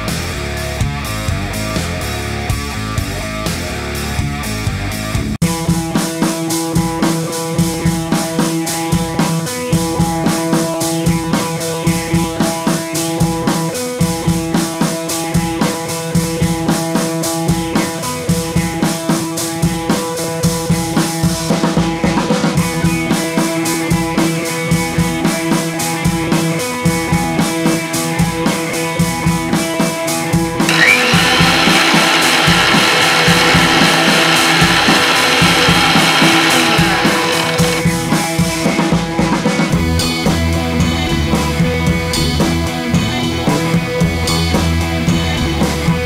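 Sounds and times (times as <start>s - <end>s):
music with drum beat and guitar: 0.0s - 46.0s.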